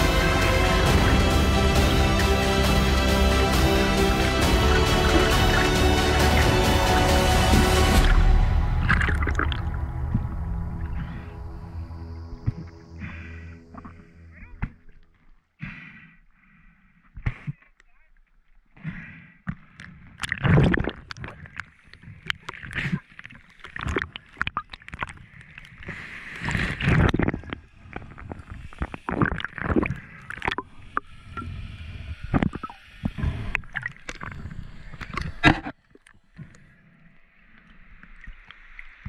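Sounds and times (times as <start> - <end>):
water sloshing and splashing: 0.0 - 15.2, 19.5 - 31.1.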